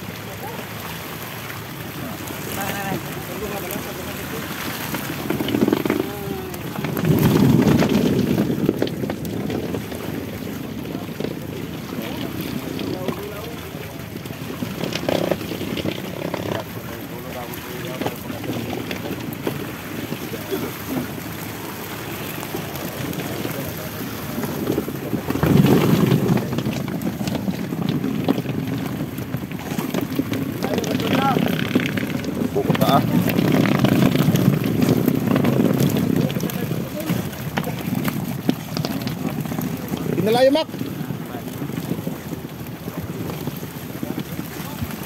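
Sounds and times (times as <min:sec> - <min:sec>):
water splashing and sloshing: 0:00.0 - 0:45.0
wind on microphone: 0:00.0 - 0:45.0
gear knocking and clattering: 0:24.7 - 0:40.4.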